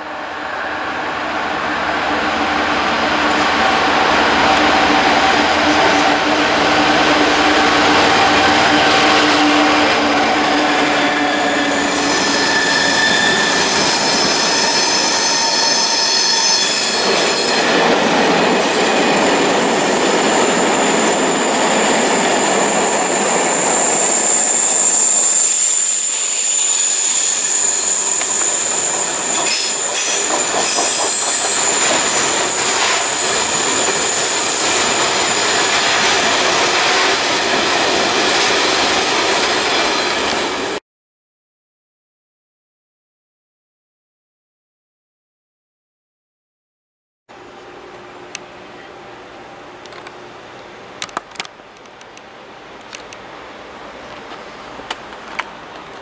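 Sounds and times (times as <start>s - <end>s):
diesel locomotive engine: 0.0s - 40.8s, 47.3s - 56.0s
wagon wheels squealing: 9.9s - 37.1s.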